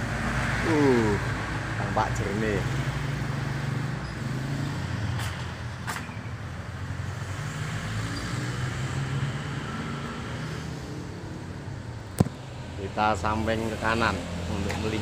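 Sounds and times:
traffic engine rumble: 0.0 - 15.0.

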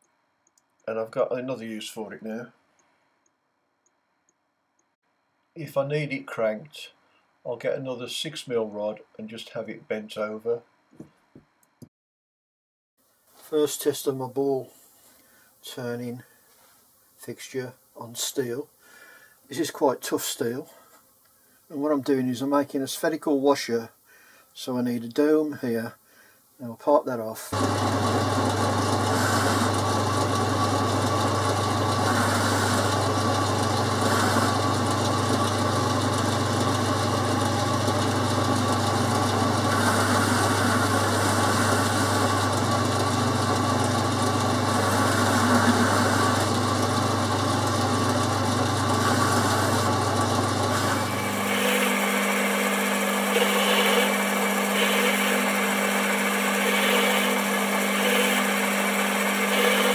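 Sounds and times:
lathe low hum: 27.5 - 59.9
scratchy metal cutting noise: 27.6 - 59.9.

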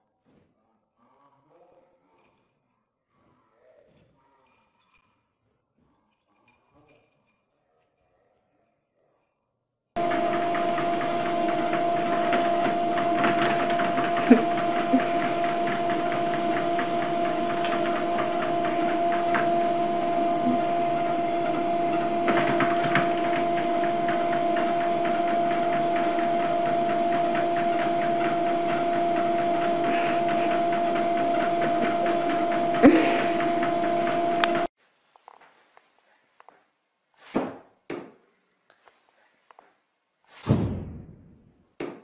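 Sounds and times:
treadmill motor whine: 10.0 - 34.7.

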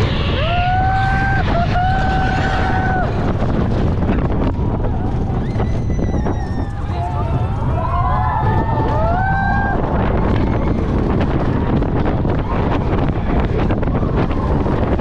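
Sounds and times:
roller coaster track noise: 0.0 - 15.0
wind on microphone: 0.0 - 15.0
rider whooping: 0.2 - 3.4, 4.5 - 11.5.

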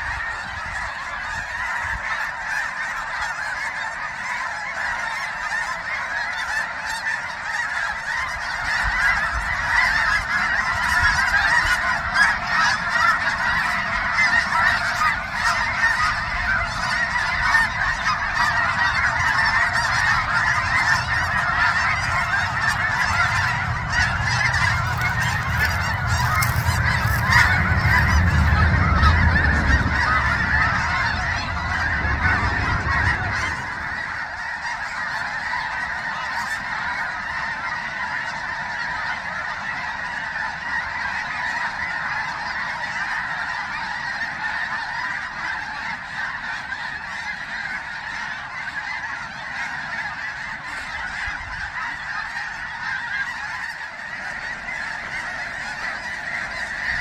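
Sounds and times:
flock of geese calling: 0.0 - 57.0
low rumble: 18.6 - 35.4.

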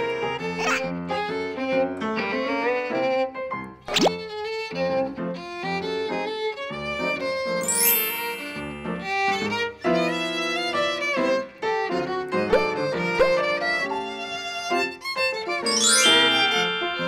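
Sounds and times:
lively violin melody: 4.1 - 17.0.

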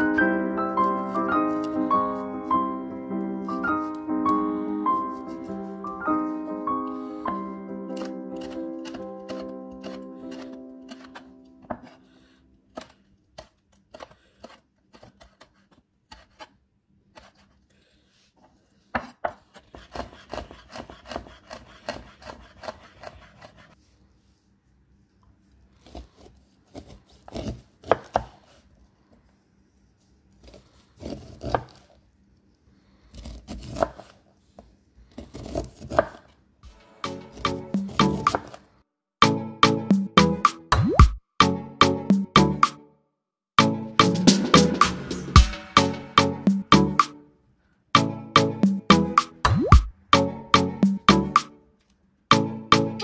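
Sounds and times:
knife cutting kernels off corn cob: 0.8 - 1.9, 7.0 - 17.5, 19.0 - 23.8, 25.8 - 28.6, 30.4 - 32.0, 33.1 - 34.2, 35.1 - 38.6
knife chopping on wooden board: 7.3 - 12.0, 19.0 - 23.6, 25.8 - 28.4, 30.4 - 31.8, 33.2 - 34.1, 35.3 - 36.3, 37.3 - 38.6.

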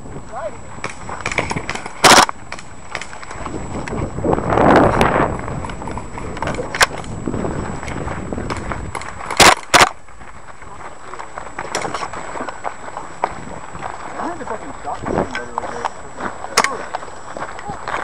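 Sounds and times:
footsteps crunching on dirt: 0.0 - 18.0
sharp cracks: 0.8 - 4.0, 7.8 - 10.4.

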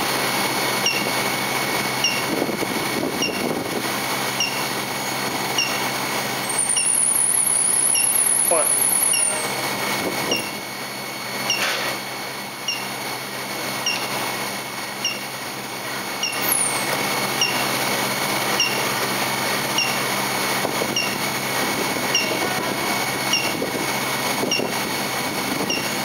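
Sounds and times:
high whine falling in pitch: 0.0 - 13.0
induction heater humming and hissing: 0.0 - 26.0.

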